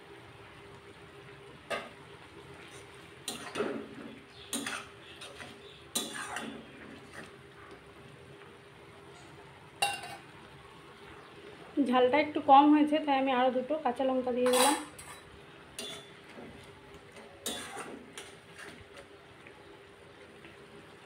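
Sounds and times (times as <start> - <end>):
spatula scraping a pan: 2.6 - 7.4, 14.6 - 16.6, 17.4 - 18.9.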